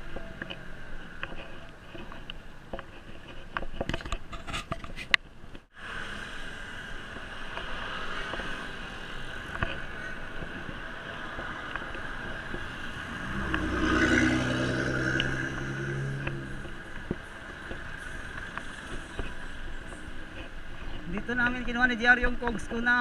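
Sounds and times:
road noise: 0.0 - 23.0
motor vehicle engine passing: 5.9 - 19.0.

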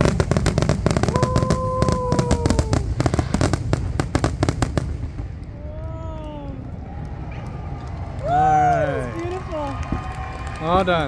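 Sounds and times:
fireworks banging and crackling: 0.0 - 8.4.

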